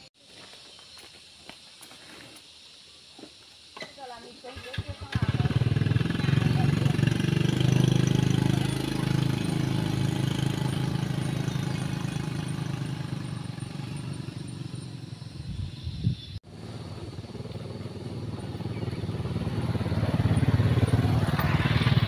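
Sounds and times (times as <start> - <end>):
motorbike engines pulling away: 4.5 - 15.8, 16.4 - 22.0
motorbike approaching: 4.5 - 22.0.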